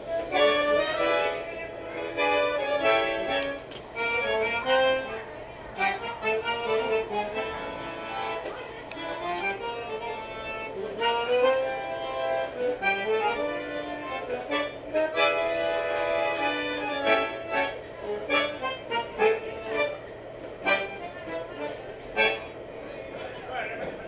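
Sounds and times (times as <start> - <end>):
bandoneon melody: 0.0 - 22.6.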